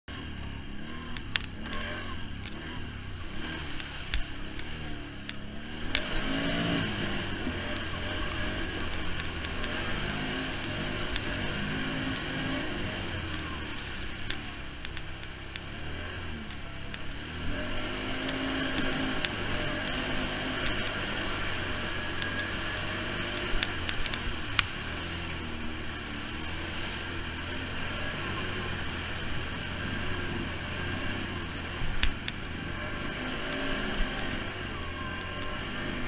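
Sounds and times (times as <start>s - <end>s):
vehicle engine revving: 0.0s - 36.0s.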